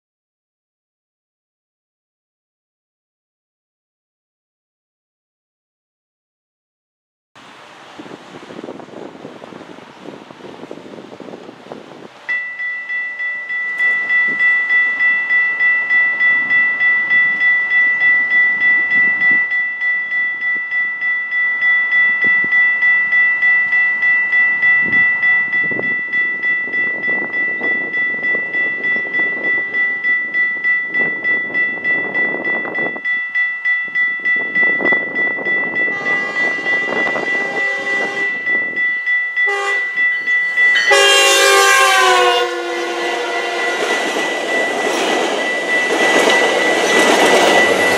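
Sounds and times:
crossing warning bell ringing: 11.6 - 47.9
train horn blasts: 35.9 - 38.5, 39.5 - 40.0, 40.8 - 44.2.

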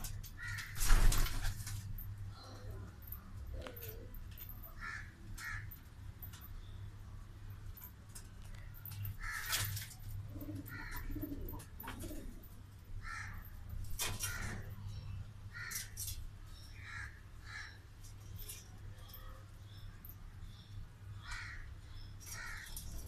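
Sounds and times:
birds calling harshly: 0.0 - 1.5, 8.5 - 12.3, 13.0 - 23.0
steady low hum: 0.0 - 23.0
pigeons cooing: 10.2 - 12.5.

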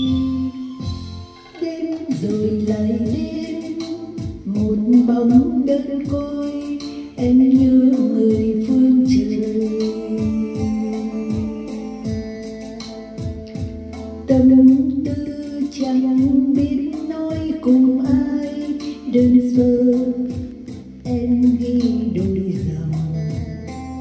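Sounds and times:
booming kick drums: 13.2 - 15.3.

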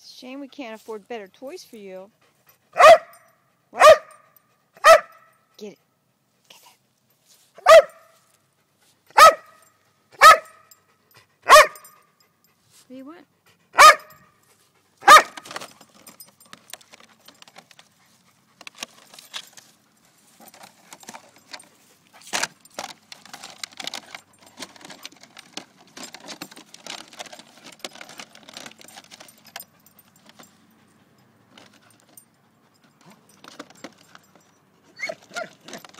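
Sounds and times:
dog barking: 2.8 - 3.2, 3.8 - 4.2, 4.8 - 5.2, 7.6 - 8.2, 9.1 - 9.6, 10.2 - 10.7, 11.5 - 11.9, 13.8 - 14.2, 15.0 - 15.4
plastic bucket crinkling: 15.0 - 30.5, 31.5 - 32.2, 33.0 - 34.4, 35.0 - 35.9.

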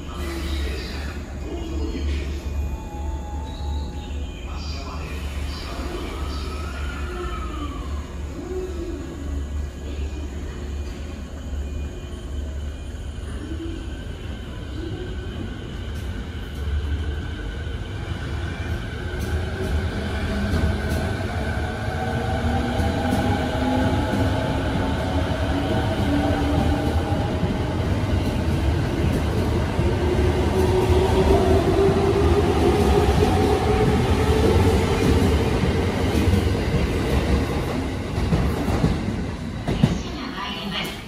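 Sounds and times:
train wheels rumbling: 15.3 - 41.0.

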